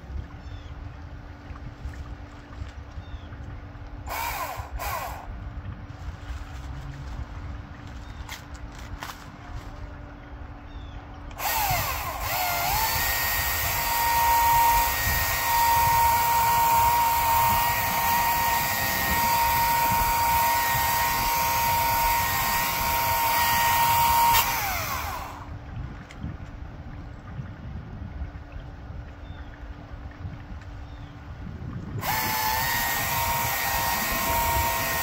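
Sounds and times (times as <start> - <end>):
power tool motor whining: 4.1 - 5.3, 11.3 - 25.5, 32.0 - 35.0.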